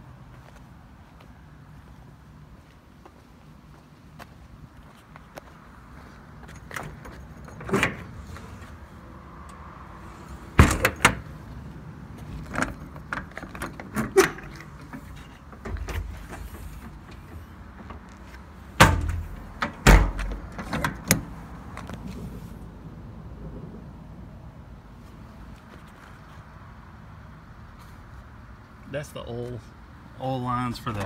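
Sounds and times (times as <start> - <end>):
metal doors thudding shut: 6.6 - 8.3, 10.5 - 11.4, 12.5 - 18.0, 18.7 - 21.3.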